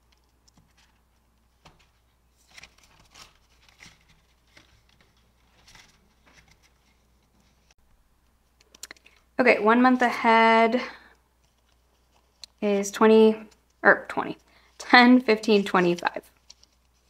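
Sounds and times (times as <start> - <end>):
paper and plastic rustling: 0.1 - 7.8, 14.3 - 17.0.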